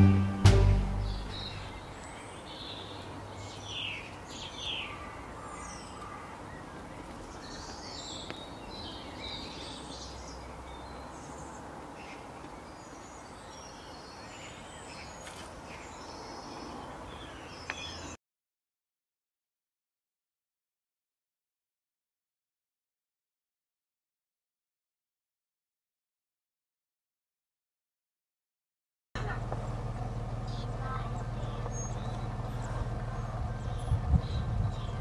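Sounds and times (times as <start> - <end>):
songbirds chirping: 0.0 - 18.2, 29.2 - 35.0.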